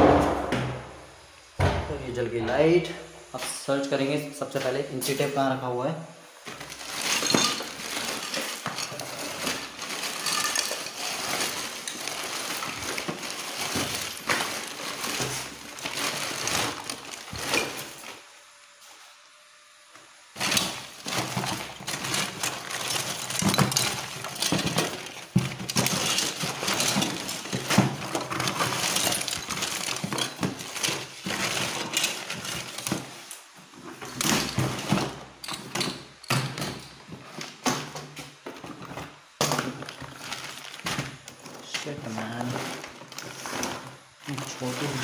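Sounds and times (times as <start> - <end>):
cardboard rustling: 6.4 - 18.3, 20.4 - 35.3, 35.9 - 45.0
plastic bags crinkling: 6.4 - 18.3, 20.4 - 45.0
small parts clinking: 6.5 - 18.1, 20.4 - 37.1.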